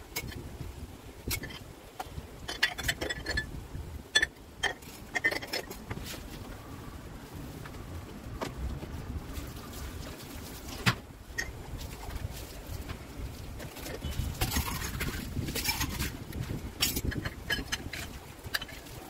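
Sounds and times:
steady low rumble: 0:00.0 - 0:19.0
cups clinking and knocking: 0:02.5 - 0:03.5, 0:04.1 - 0:05.9, 0:16.8 - 0:18.9.

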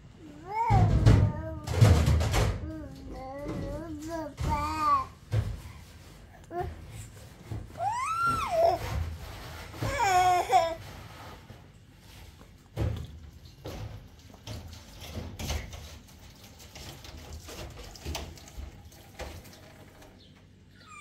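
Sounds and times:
toddler babbling: 0:00.2 - 0:02.0, 0:02.6 - 0:05.2, 0:06.3 - 0:06.9, 0:07.7 - 0:08.8, 0:09.8 - 0:10.8
plastic toys knocking: 0:00.7 - 0:05.6.

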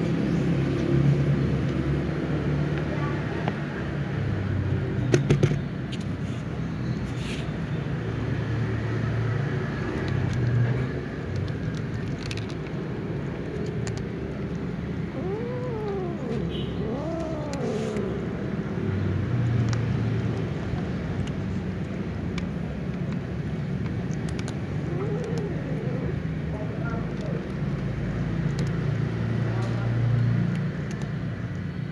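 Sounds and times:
cats crunching dry kibble: 0:09.5 - 0:31.6
cat meowing: 0:15.0 - 0:18.5, 0:24.8 - 0:26.2.

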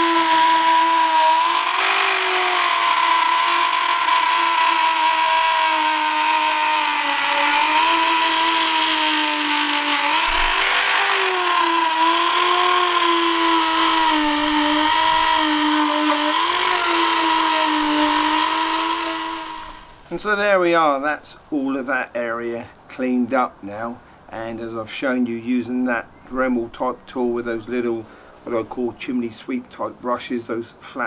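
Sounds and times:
rotary tool motor whining: 0:00.0 - 0:20.0.

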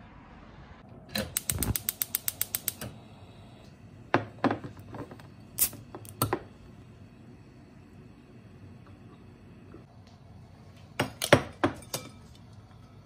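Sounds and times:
gas stove igniter clicking: 0:01.1 - 0:03.7, 0:05.2 - 0:06.6
objects knocking on counter: 0:04.1 - 0:05.2.

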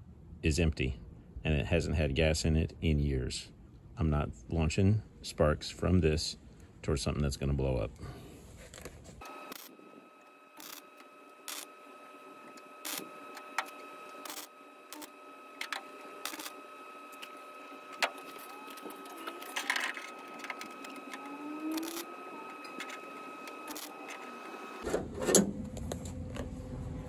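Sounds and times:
welder zapping: 0:09.2 - 0:24.8.

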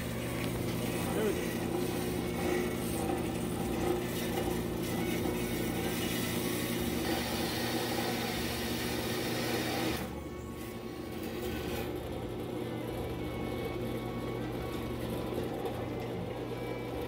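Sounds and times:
band saw motor hum: 0:00.0 - 0:17.0.

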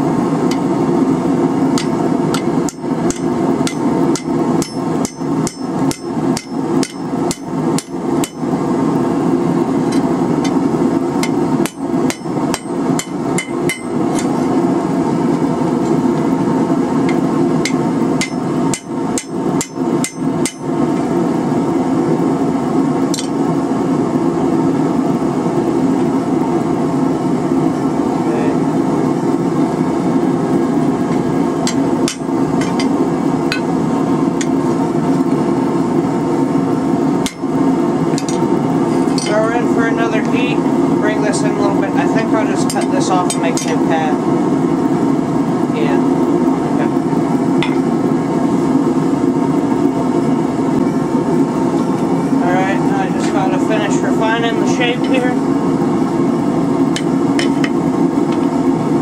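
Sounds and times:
steady low drone: 0:00.0 - 0:59.0
hammer striking hot metal on anvil: 0:00.5 - 0:00.7, 0:01.7 - 0:08.6, 0:09.8 - 0:14.6, 0:17.0 - 0:21.1, 0:23.1 - 0:23.4, 0:31.1 - 0:33.7, 0:37.2 - 0:39.4, 0:42.6 - 0:43.8, 0:47.6 - 0:47.9, 0:56.9 - 0:57.8.

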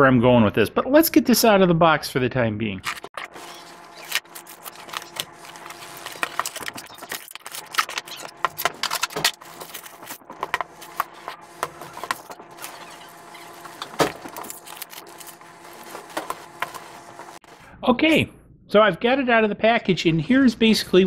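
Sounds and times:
plastic wrap rustling: 0:02.8 - 0:17.5.

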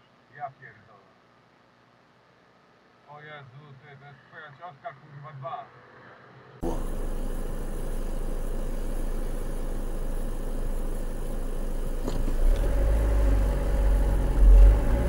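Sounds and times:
car engine idling and accelerating: 0:09.7 - 0:15.0.

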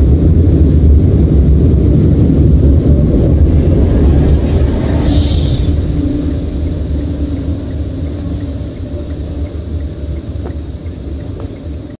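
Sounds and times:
car cabin rumble: 0:00.0 - 0:12.0
faint regular ticking: 0:06.3 - 0:12.0.

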